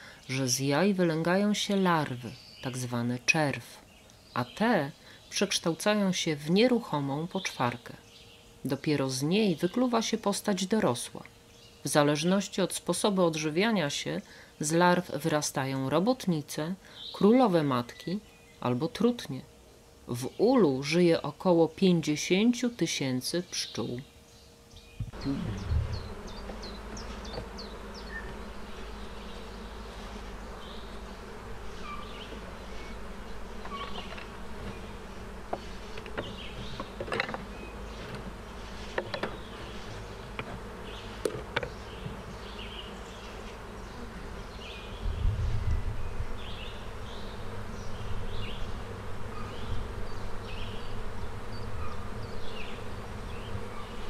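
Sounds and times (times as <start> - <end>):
honeybees buzzing: 0.0 - 54.0
low rumble: 25.2 - 26.2, 45.0 - 46.3
wooden clicks of hive frames: 25.9 - 43.8.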